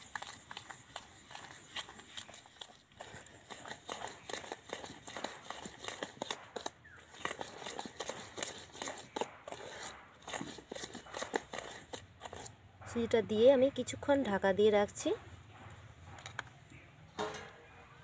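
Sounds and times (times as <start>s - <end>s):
metal spoon scraping steel bowl: 0.0s - 12.6s.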